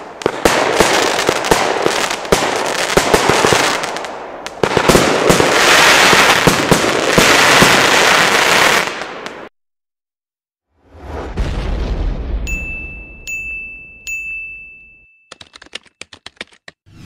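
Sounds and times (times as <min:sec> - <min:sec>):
firework crackling: 0:00.0 - 0:09.5
firework shots: 0:00.0 - 0:09.5.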